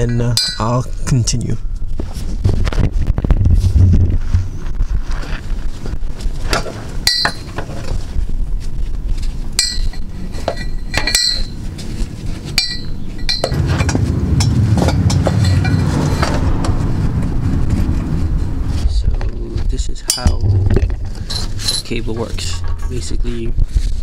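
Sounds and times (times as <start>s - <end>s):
metal clinks and taps: 7.0s - 7.6s, 9.6s - 11.6s, 12.5s - 16.4s
low rushing noise: 13.4s - 24.0s.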